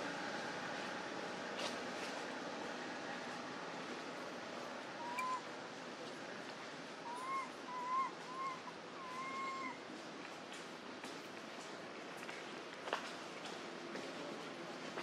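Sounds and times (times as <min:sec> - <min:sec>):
whistle-like animal calls: 0:05.0 - 0:05.5, 0:07.1 - 0:09.8.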